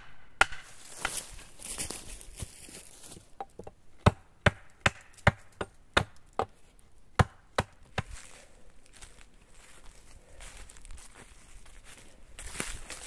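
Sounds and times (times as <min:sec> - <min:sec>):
hatchet chopping wood: 0:00.0 - 0:01.2, 0:03.4 - 0:08.2.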